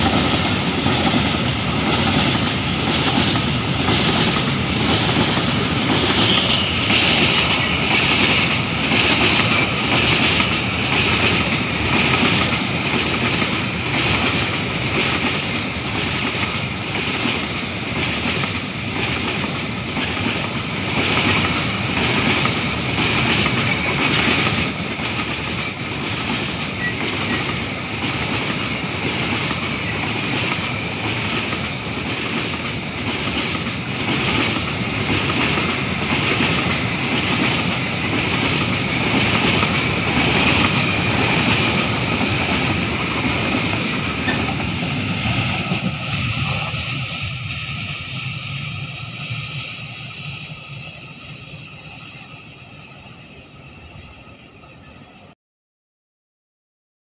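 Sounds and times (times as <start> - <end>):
train wheels clacking over rail joints: 0.0 - 49.4
continuous train rumble: 0.0 - 55.4.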